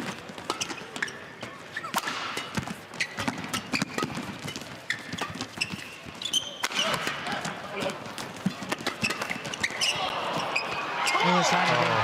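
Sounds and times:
rackets hitting shuttlecock: 0.0s - 10.8s
shoes squeaking: 0.0s - 11.5s.

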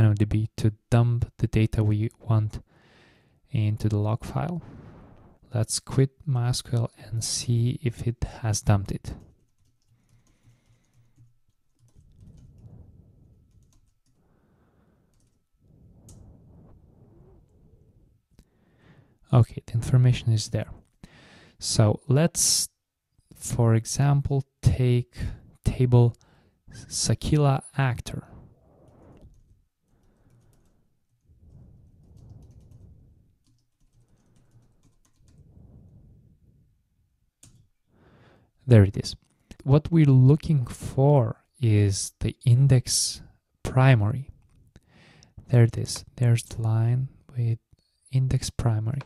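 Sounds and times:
soft low rumble: 4.5s - 5.4s, 12.1s - 13.6s, 15.6s - 18.2s, 31.2s - 33.4s, 35.3s - 37.2s
typing on a computer keyboard: 9.2s - 12.6s, 13.5s - 14.2s, 15.1s - 15.4s, 29.3s - 31.2s, 31.9s - 35.4s.

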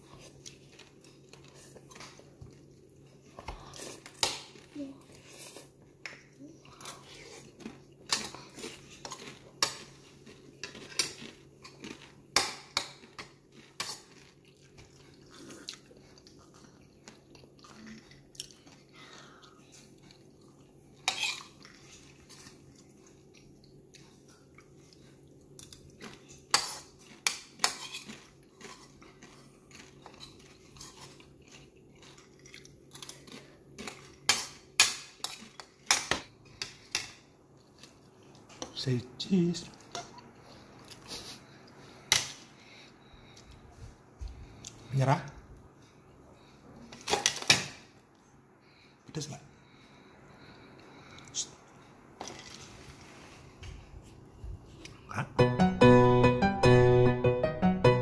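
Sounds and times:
chewing: 0.0s - 38.8s.

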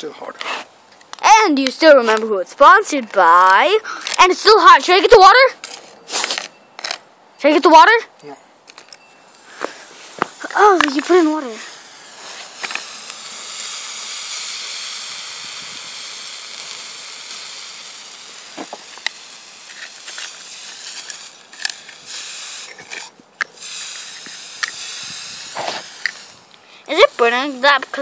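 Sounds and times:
sharp crackles and pops: 0.4s - 4.3s, 5.6s - 7.1s, 8.6s - 28.0s
water hissing into steam: 9.4s - 28.0s.

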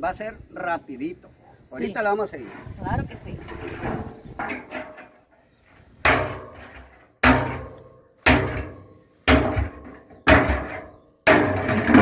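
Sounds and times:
machete striking metal drum: 6.1s - 12.0s.

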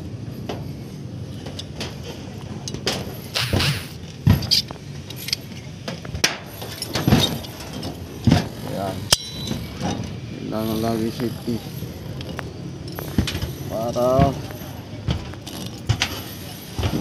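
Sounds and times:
knocks and thuds on metal roof: 8.2s - 8.6s.

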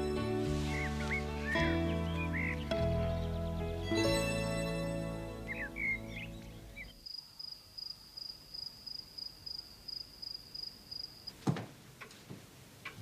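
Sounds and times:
soundtrack music: 0.0s - 6.6s
cricket chirping: 6.8s - 11.4s.

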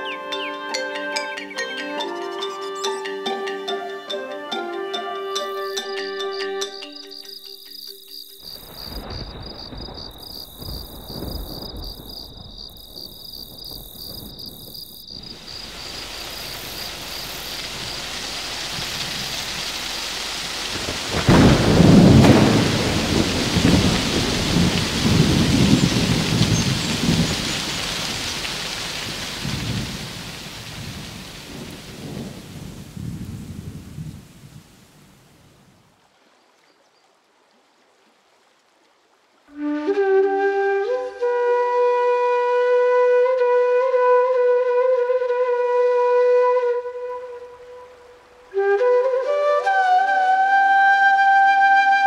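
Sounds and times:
rain hiss: 0.0s - 41.4s, 46.0s - 51.7s
cricket chirring: 5.3s - 20.0s
thunder rumbling: 8.5s - 35.7s.

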